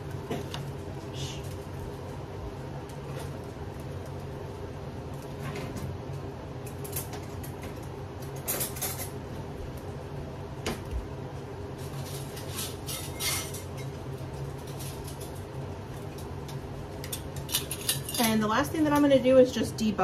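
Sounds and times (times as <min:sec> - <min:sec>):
steady low hum: 0:00.0 - 0:20.0
utensils clinking against glass jars: 0:17.5 - 0:18.5.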